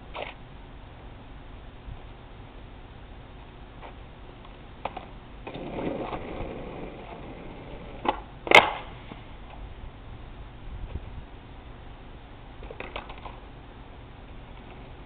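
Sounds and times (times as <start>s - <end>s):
skateboard wheels rolling on asphalt: 0.0s - 15.0s
skateboard stepped on: 0.1s - 0.4s, 3.8s - 9.6s, 12.6s - 13.4s, 14.5s - 15.0s
skateboard slapping down: 4.8s - 9.1s, 12.6s - 13.4s
skateboard tail pop: 8.0s - 9.2s.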